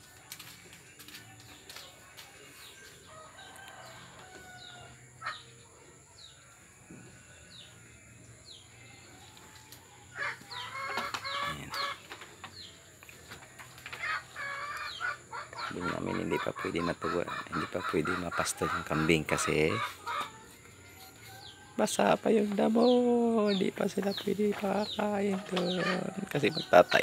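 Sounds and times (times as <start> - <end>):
poultry chirping: 10.1 - 12.8, 14.0 - 20.4, 21.0 - 27.0.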